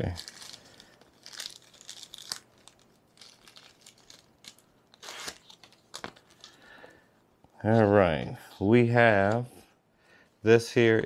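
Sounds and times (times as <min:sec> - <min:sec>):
paper crinkling and rustling: 0:00.0 - 0:06.6.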